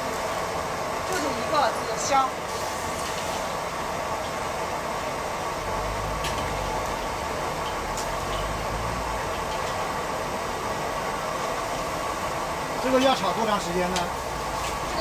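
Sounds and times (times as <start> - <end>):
gas wok burners roaring: 0.0 - 15.0
metal spatulas clicking on woks: 9.3 - 9.9.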